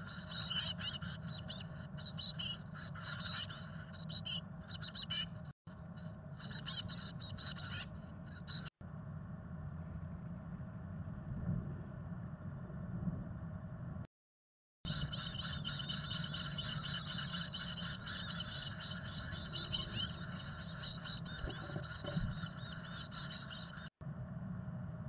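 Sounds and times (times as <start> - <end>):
chicks begging calls: 0.0 - 5.4, 6.4 - 8.7, 14.9 - 23.9
low steady hum: 0.0 - 14.1, 14.9 - 25.0.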